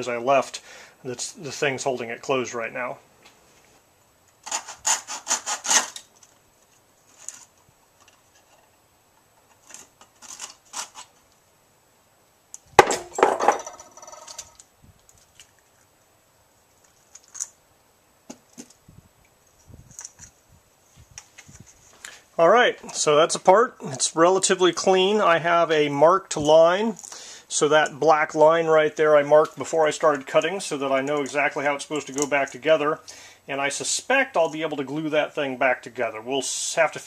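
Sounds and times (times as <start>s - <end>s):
saw cutting plastic: 4.4s - 6.1s.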